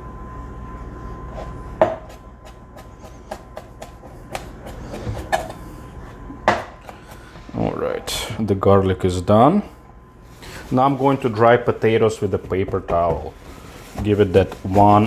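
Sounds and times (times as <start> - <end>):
knife chopping on plastic board: 1.8 - 5.6, 12.4 - 13.3.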